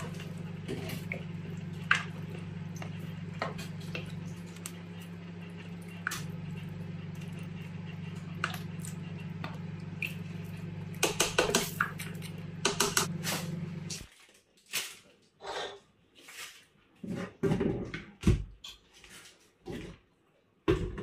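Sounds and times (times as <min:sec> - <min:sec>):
stew squelching and bubbling: 0:00.0 - 0:13.2
steady low hum: 0:00.0 - 0:14.1.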